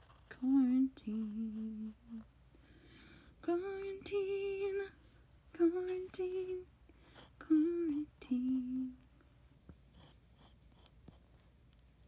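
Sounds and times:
person singing in a high voice: 0:07.4 - 0:09.0.

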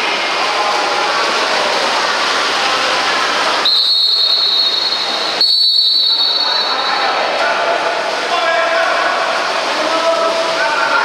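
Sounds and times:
din of indoor pool: 0:00.0 - 0:11.0
referee's whistle long blasts: 0:03.6 - 0:07.1.

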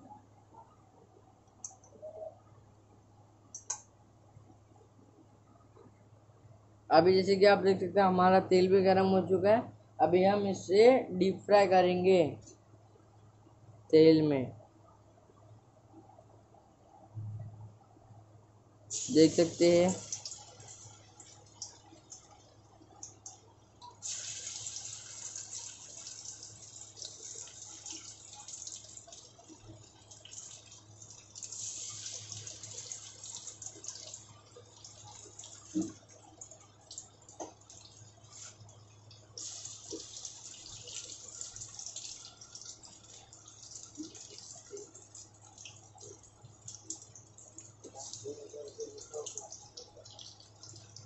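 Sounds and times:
food deep-frying in oil: 0:18.9 - 0:51.0.

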